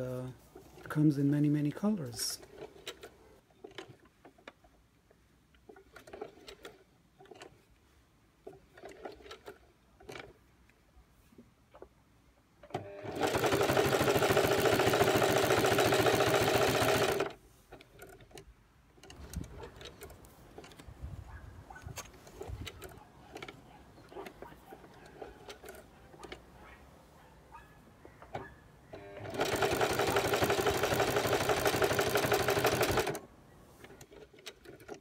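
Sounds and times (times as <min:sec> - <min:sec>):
sewing machine stitching: 0:02.2 - 0:04.6, 0:05.7 - 0:07.6, 0:08.4 - 0:10.4, 0:12.7 - 0:18.4, 0:22.2 - 0:26.4, 0:28.3 - 0:35.0.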